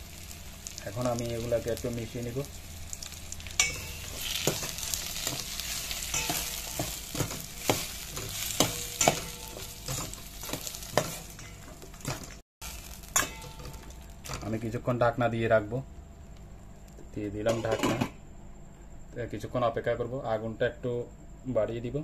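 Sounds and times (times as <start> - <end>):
vegetables sizzling in oil: 0.0 - 15.1
metal spatula scraping pot: 3.6 - 12.4.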